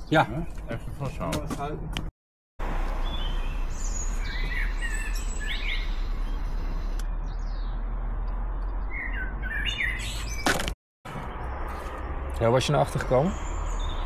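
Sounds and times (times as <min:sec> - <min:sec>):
birds chirping and singing: 0:03.0 - 0:10.6, 0:12.7 - 0:14.0.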